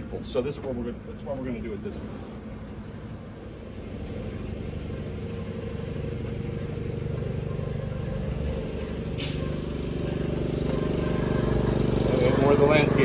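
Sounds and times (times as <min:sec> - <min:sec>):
landscaping equipment engine: 0:00.0 - 0:13.0.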